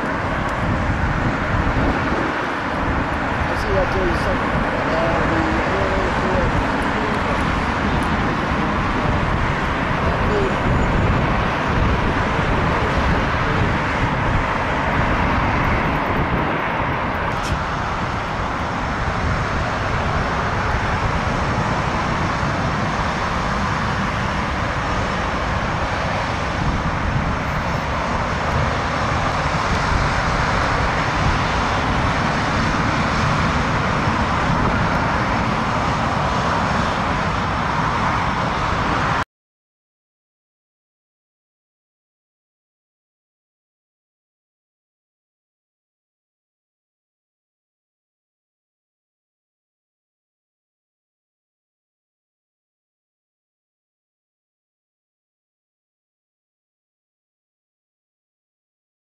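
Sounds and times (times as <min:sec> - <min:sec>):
jet engines running: 0:00.0 - 0:39.2.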